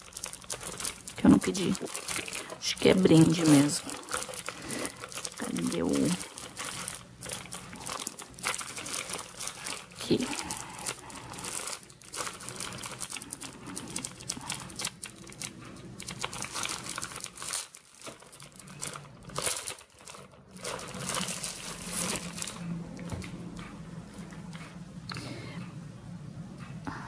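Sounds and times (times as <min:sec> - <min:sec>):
plastic packaging crinkling: 0:00.0 - 0:23.6.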